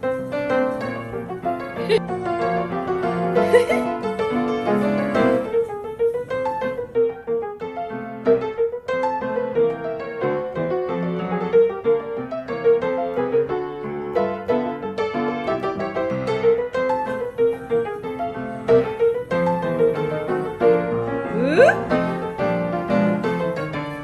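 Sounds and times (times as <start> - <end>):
piano background music: 0.0 - 24.0.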